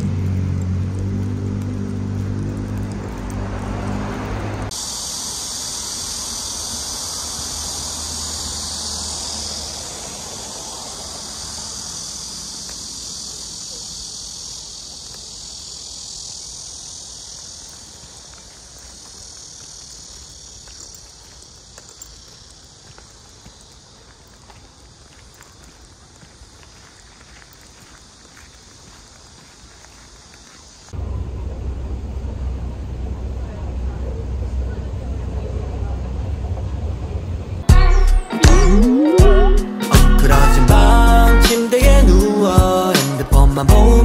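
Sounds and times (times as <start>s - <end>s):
cicada chorus buzzing: 0.0s - 31.0s, 37.6s - 44.0s
low steady hum: 31.0s - 37.6s.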